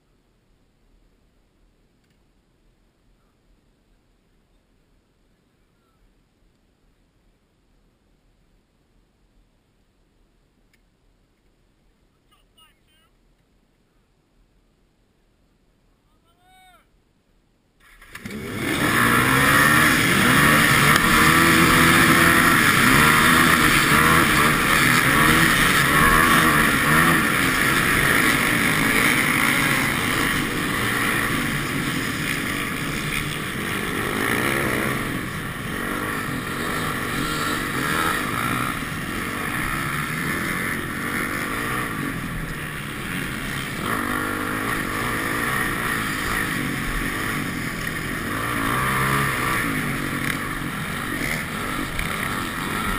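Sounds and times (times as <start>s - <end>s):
dirt bike engines revving: 17.8s - 52.9s
motorcycle accelerating through gears: 17.8s - 52.9s.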